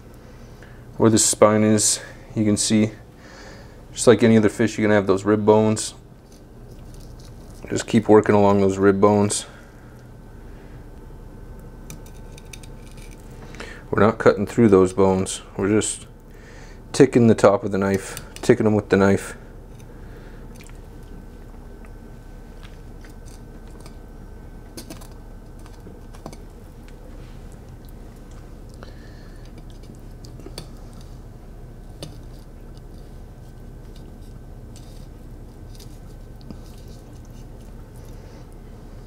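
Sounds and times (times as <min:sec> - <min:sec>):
faint hum: 0:00.0 - 0:39.0.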